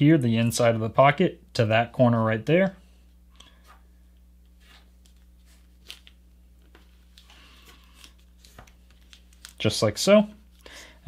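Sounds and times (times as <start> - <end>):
paper rustling and crinkling: 4.6 - 9.8.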